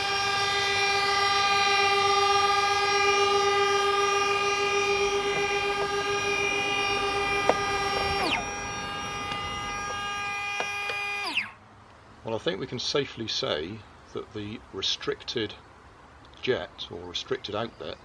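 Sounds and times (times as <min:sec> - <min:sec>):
small electric motor whining: 0:00.0 - 0:11.6.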